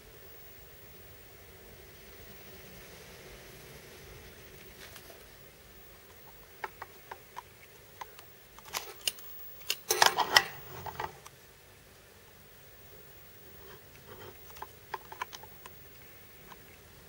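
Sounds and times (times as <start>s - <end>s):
camera handling clicks and rustling: 6.6s - 11.3s, 14.4s - 15.8s.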